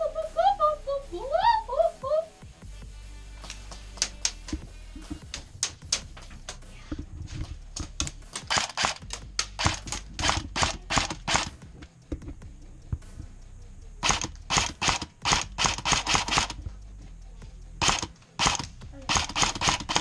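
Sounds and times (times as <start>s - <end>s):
airsoft guns firing rapidly: 8.3s - 11.6s, 14.0s - 16.6s, 17.8s - 20.0s.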